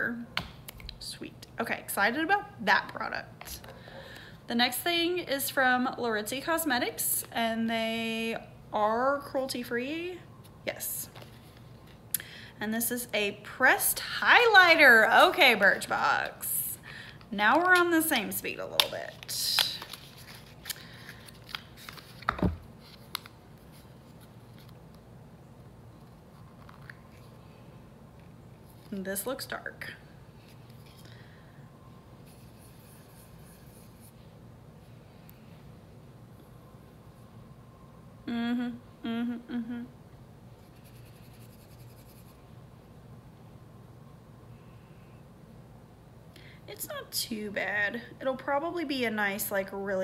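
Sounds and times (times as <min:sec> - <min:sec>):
faint room hum: 0:00.0 - 0:50.0
woman humming: 0:38.2 - 0:40.0.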